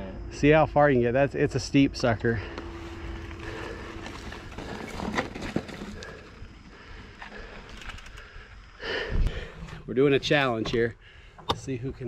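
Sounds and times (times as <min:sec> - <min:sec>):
tyres crunching over dirt: 0:02.0 - 0:08.0
bike clicks and knocks: 0:03.3 - 0:06.4, 0:07.2 - 0:08.3.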